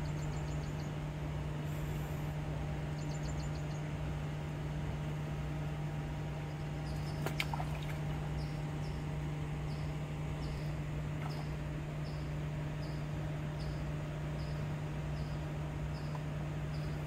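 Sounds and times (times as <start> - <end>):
birds trilling and chirping: 0.0 - 1.1, 2.8 - 4.1, 6.3 - 17.0
steady low hum: 0.0 - 17.0.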